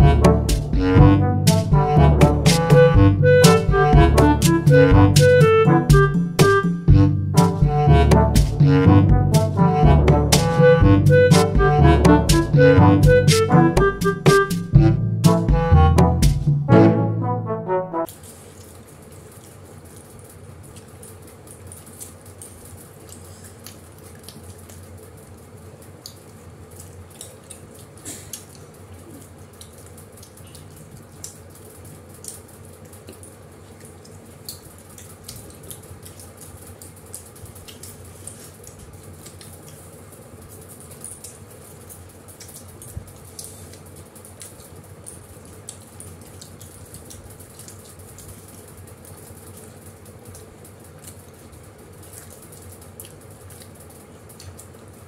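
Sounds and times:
steady low hum: 0.0 - 18.0
people chewing food: 18.1 - 55.0.

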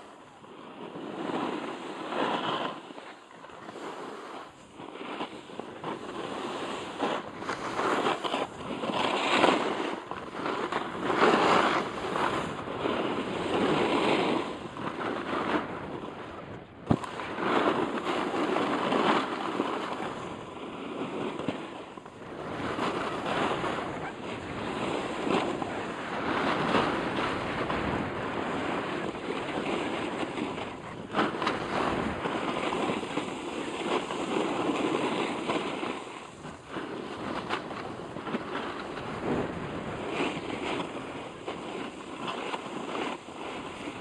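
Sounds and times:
snowboard edge scraping snow: 0.0 - 16.2, 16.8 - 44.0
wind rushing over microphone: 0.0 - 44.0.

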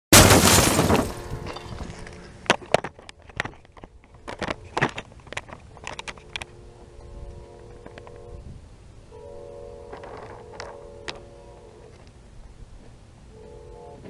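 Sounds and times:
loud sudden bang: 0.1 - 1.5
faint steady tones: 3.7 - 14.0.

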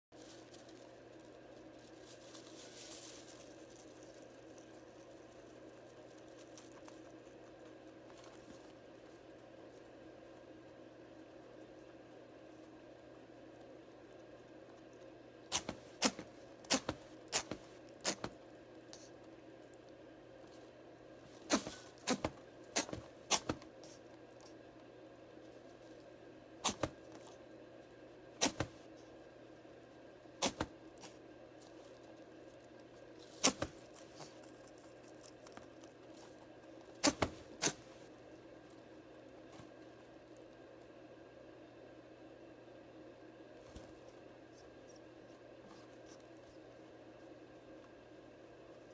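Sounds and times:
rabbit sneezing: 15.5 - 19.2, 21.3 - 24.1, 26.6 - 27.1, 28.4 - 28.9, 30.4 - 31.3, 37.0 - 38.1.

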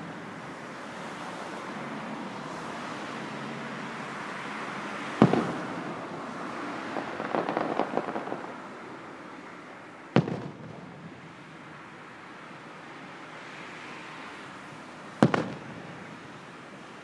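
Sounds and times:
firework booms: 5.2 - 6.2, 7.0 - 8.6, 10.1 - 11.4, 15.2 - 16.1
firework crackling: 5.2 - 11.6, 15.2 - 16.4.

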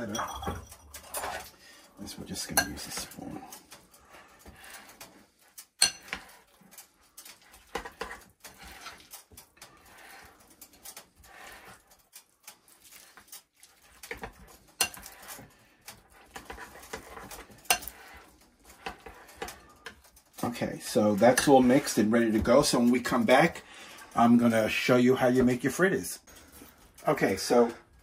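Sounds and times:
spoon stirring thick batter: 0.0 - 28.0
spoon clinking on glass bowl: 5.8 - 6.1.

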